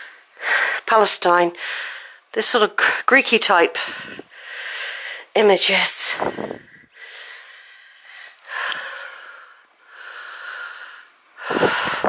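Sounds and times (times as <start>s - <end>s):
woman speaking: 0.8s - 1.6s, 2.4s - 3.9s, 5.3s - 6.3s
person breathing noisily: 3.8s - 5.3s, 6.2s - 12.0s.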